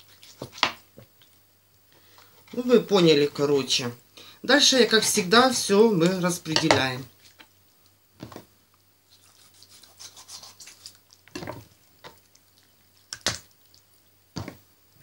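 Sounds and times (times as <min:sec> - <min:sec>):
knife cutting raw chicken: 0:09.2 - 0:11.7.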